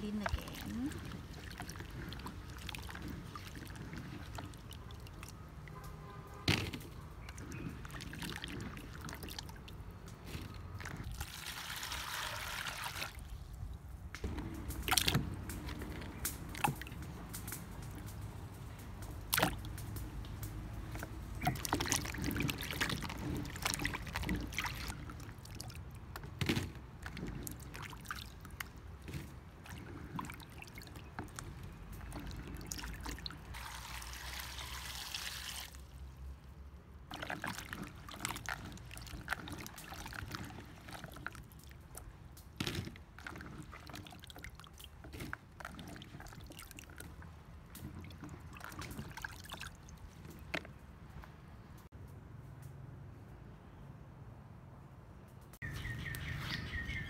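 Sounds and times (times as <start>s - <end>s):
water pouring from a jug: 0.0s - 13.5s, 14.3s - 36.2s, 37.1s - 50.7s
hands sloshing vegetables in water: 0.0s - 51.1s
small knocks and splashes: 0.0s - 51.9s.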